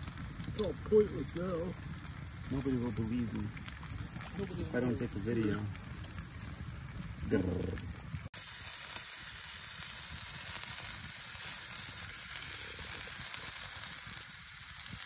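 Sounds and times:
sausages sizzling on a grill: 0:00.0 - 0:15.0.

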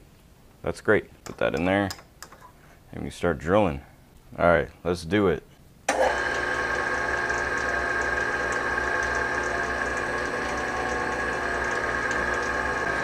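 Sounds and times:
drill bit boring into metal: 0:05.9 - 0:13.0
metal lathe running: 0:05.9 - 0:13.0.

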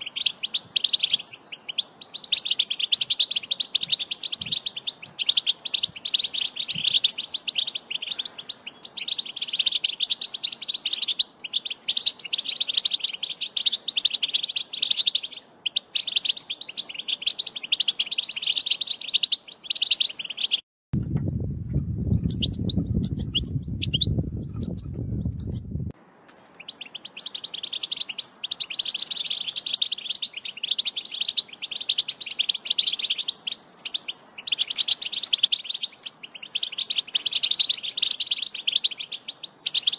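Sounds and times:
goldfinch twittering: 0:00.0 - 0:20.6, 0:22.2 - 0:39.9
low rumble: 0:21.0 - 0:26.0.

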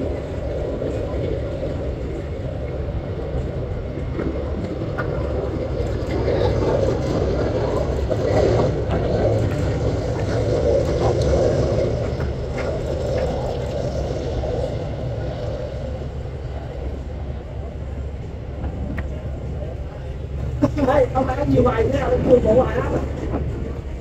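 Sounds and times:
jet engines rumbling: 0:00.0 - 0:24.0.

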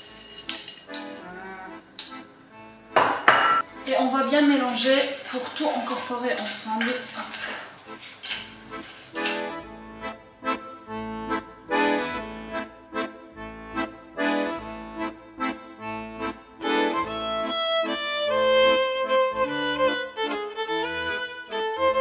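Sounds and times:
accordion playing chords: 0:00.9 - 0:03.9, 0:07.8 - 0:22.0.

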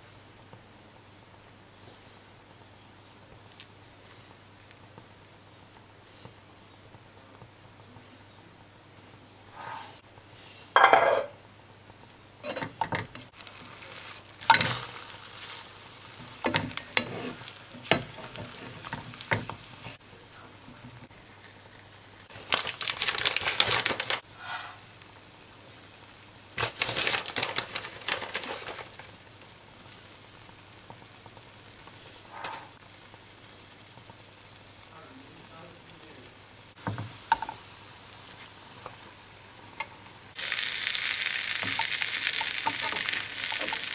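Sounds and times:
food frying in a pan: 0:09.5 - 0:43.9
spatula scraping a pan: 0:13.7 - 0:20.0, 0:24.3 - 0:24.9.

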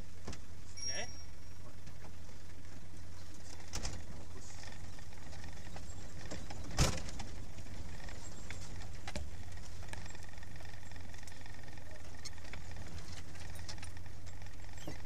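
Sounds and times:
engine low drone: 0:00.0 - 0:15.0
vehicle rattles and knock: 0:03.5 - 0:15.0.

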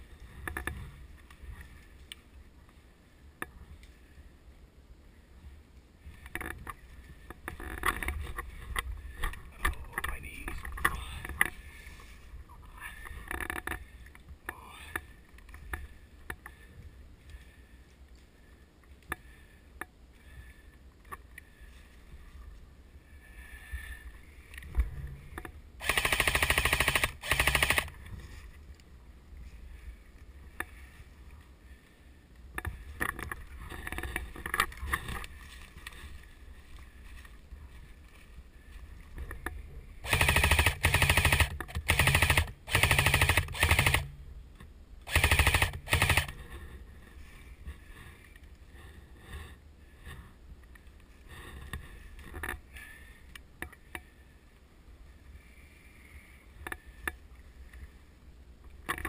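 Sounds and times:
rustling: 0:20.2 - 0:44.1
airsoft rifle firing bursts: 0:25.8 - 0:28.0, 0:40.0 - 0:44.2, 0:45.1 - 0:46.4.

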